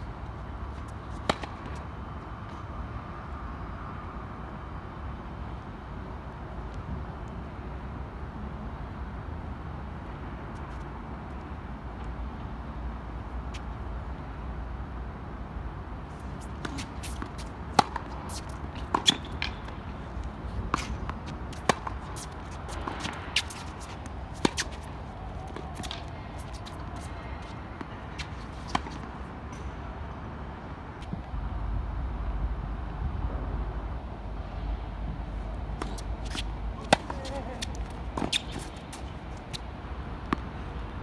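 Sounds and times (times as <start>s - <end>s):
tennis ball bouncing on hard court: 1.1s - 1.8s, 16.4s - 20.0s, 20.6s - 29.7s, 35.7s - 39.6s
tennis ball struck by rackets: 1.1s - 1.8s, 16.4s - 20.0s, 20.6s - 29.7s, 35.7s - 39.6s.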